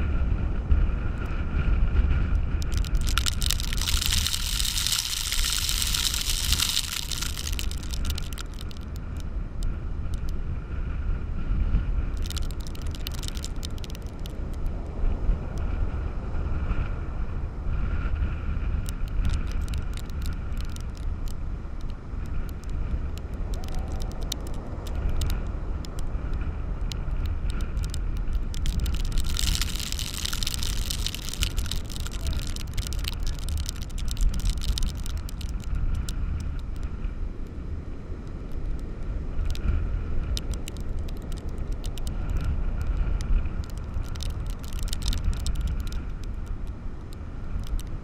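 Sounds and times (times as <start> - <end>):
wind buffeting the microphone: 0.0 - 48.0
breaking surf: 2.0 - 9.2, 12.1 - 14.9, 18.6 - 37.0
sharp ticks: 2.1 - 10.4, 12.0 - 15.7, 18.6 - 48.0.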